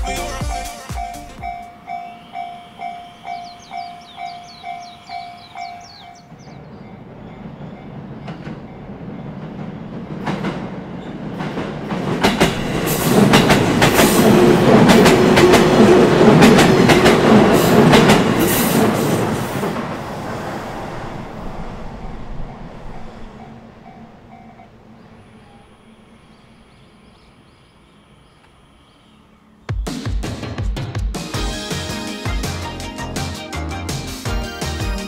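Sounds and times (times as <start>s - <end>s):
level-crossing bell ringing: 0.0s - 6.2s
electric train passing: 0.0s - 29.7s
train wheels clattering over rail joints: 9.3s - 19.9s.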